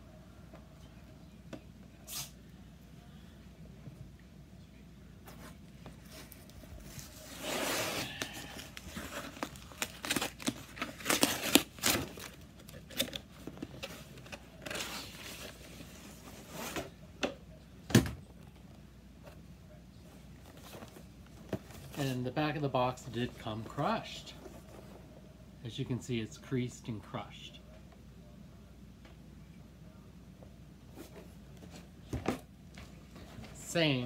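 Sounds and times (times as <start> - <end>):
cardboard and packing crinkling: 5.3 - 16.8
cardboard box tearing open: 7.3 - 13.2.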